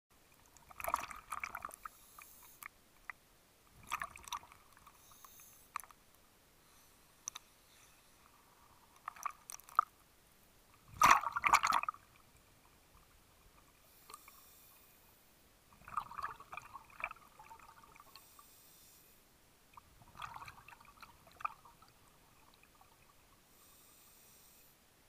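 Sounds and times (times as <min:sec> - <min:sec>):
water gurgling and bubbling: 0:00.6 - 0:01.8, 0:03.8 - 0:04.8, 0:10.8 - 0:12.2, 0:15.7 - 0:18.0, 0:19.8 - 0:23.2.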